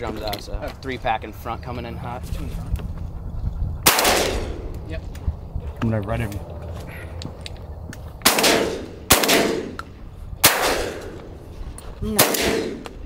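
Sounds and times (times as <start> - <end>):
shotgun blasts: 3.8 - 4.7, 8.2 - 9.8, 10.4 - 11.3, 12.1 - 13.0.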